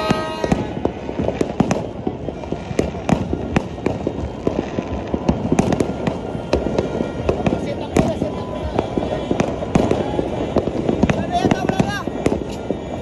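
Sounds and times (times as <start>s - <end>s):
distant explosions rumbling and crackling: 0.0s - 13.0s
firecrackers banging: 0.0s - 13.0s.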